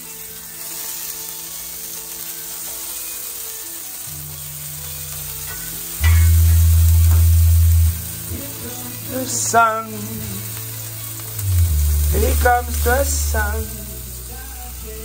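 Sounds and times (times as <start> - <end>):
meat sizzling on electric grill: 0.0 - 15.0
low droning hum: 4.4 - 8.8, 10.2 - 15.0.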